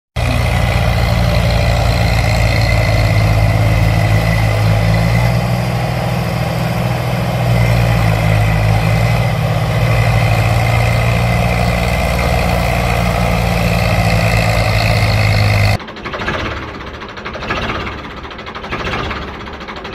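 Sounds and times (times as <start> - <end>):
toy tractor motor humming: 0.2 - 15.8.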